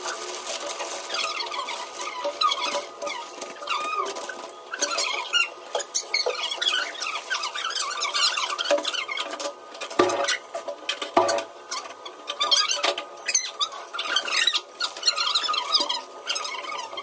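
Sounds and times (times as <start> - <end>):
plastic packets crinkling: 0.0 - 9.3
high-pitched squeaky chatter: 1.0 - 9.5, 11.7 - 17.0.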